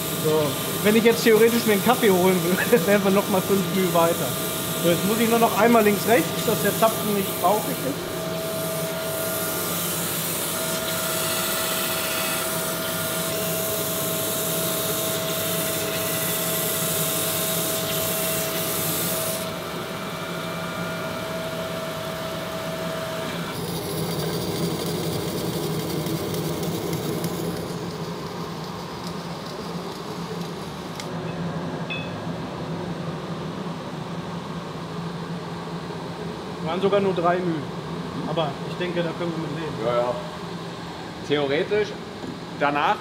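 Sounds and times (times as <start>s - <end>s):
grinding wheel hissing on metal: 0.0s - 19.6s, 23.5s - 31.0s
machine running hum: 0.0s - 41.3s.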